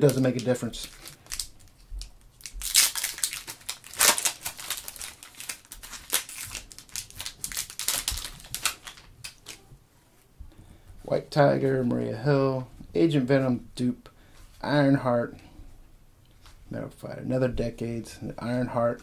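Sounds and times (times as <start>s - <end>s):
foil wrapper tearing and crinkling: 0.0s - 9.6s.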